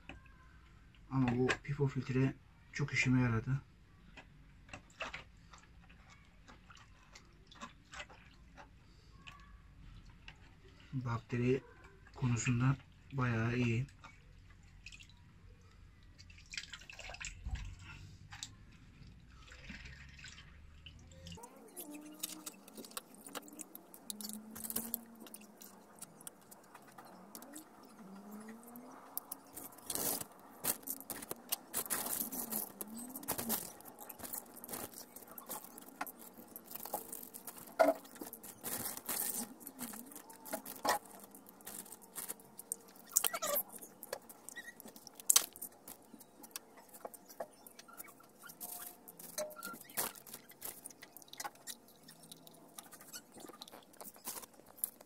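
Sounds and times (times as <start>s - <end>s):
plastic bottle clicks and crinkles: 21.4s - 55.0s.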